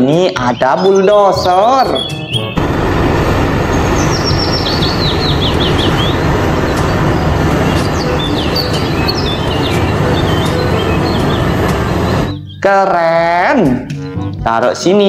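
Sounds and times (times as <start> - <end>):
bird chirping: 0.4 - 12.7
bulldozer engines rumbling: 2.5 - 12.4.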